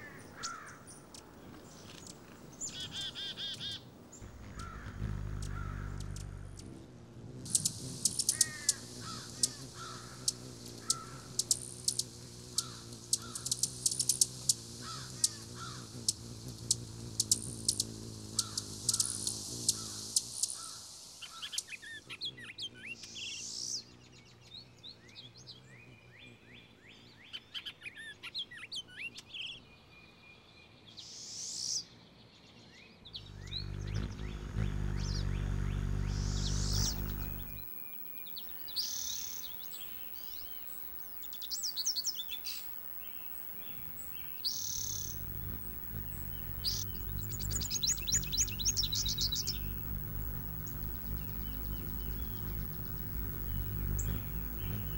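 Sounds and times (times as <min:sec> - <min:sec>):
hummingbirds chipping and twittering: 0:00.0 - 0:29.6, 0:33.1 - 0:54.9
low steady hum: 0:04.1 - 0:19.2, 0:33.2 - 0:54.9.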